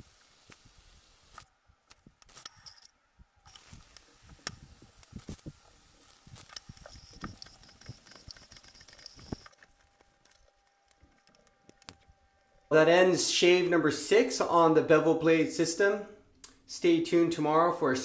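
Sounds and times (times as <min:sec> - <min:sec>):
razor scraping stubble: 0:00.4 - 0:12.2.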